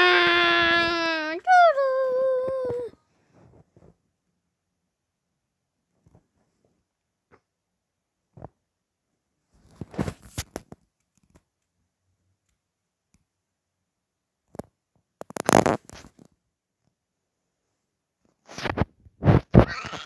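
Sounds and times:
rubbing on phone microphone: 0:02.4 - 0:04.0, 0:15.2 - 0:16.3, 0:18.2 - 0:20.0.

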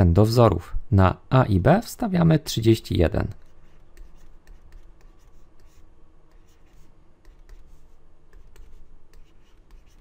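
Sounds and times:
stylus scratching on tablet: 0:03.3 - 0:10.0.

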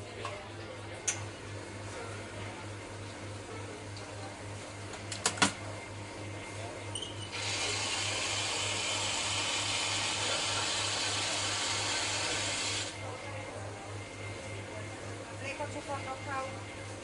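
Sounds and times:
coffee grinder running: 0:07.3 - 0:13.0.

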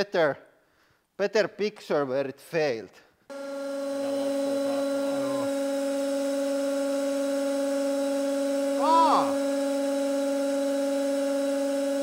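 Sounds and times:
hydraulic pump humming: 0:03.3 - 0:12.0.

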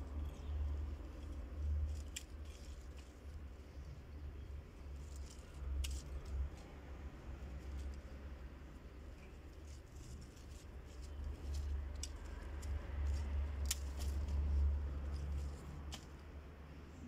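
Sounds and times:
steady low rumble: 0:00.0 - 0:17.0
scissors snipping stems: 0:00.8 - 0:03.3, 0:05.0 - 0:06.8, 0:09.2 - 0:16.4.

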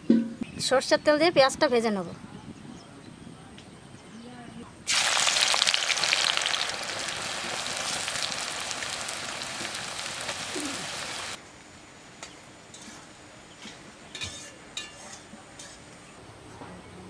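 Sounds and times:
onions sizzling in hot oil: 0:04.9 - 0:11.4.

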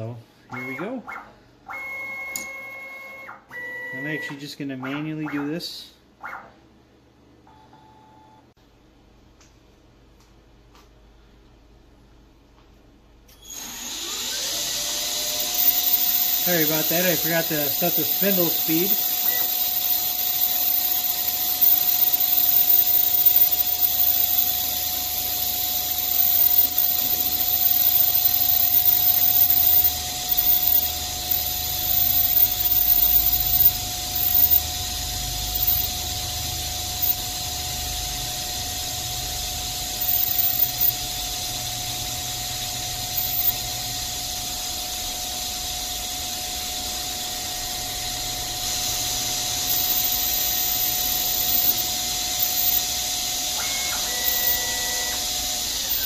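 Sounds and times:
metal lathe whining: 0:13.5 - 0:44.2, 0:46.7 - 0:56.0
lathe tool cutting metal: 0:13.9 - 0:38.2, 0:39.1 - 0:41.4, 0:48.5 - 0:56.0.

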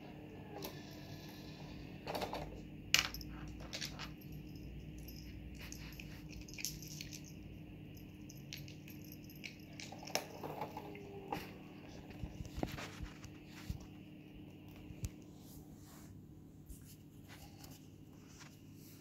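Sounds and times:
faint steady hum: 0:00.0 - 0:19.0
collar tag and bell clinking: 0:03.0 - 0:12.6.

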